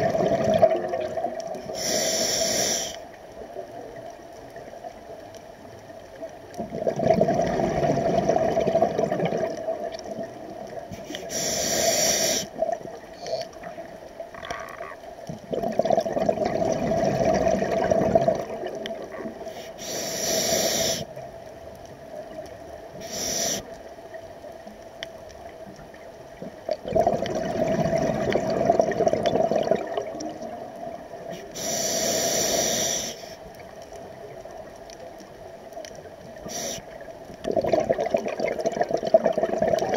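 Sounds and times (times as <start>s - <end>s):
bubbling regulator exhalations: 0.0s - 2.0s, 6.6s - 10.3s, 14.4s - 21.0s, 26.7s - 30.7s, 37.4s - 39.9s
hissing regulator inhalations: 1.7s - 3.1s, 10.9s - 12.6s, 19.4s - 21.1s, 23.0s - 23.8s, 31.3s - 33.5s, 36.4s - 37.0s.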